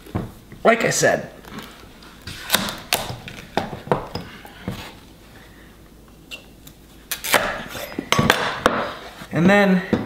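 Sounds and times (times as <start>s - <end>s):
knife cracking through squash: 2.4s - 3.4s, 6.6s - 8.6s.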